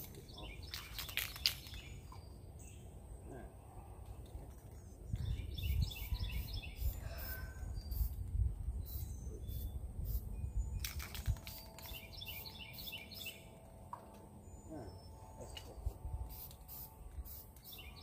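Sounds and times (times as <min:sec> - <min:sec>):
birds chirping: 0:00.0 - 0:18.0
aerosol can spraying: 0:16.3 - 0:17.8.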